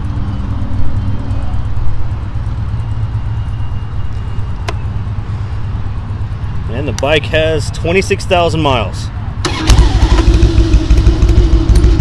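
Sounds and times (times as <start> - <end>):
motorcycle engine idling: 0.0 - 6.8, 9.4 - 12.0
sharp click: 4.6 - 4.8.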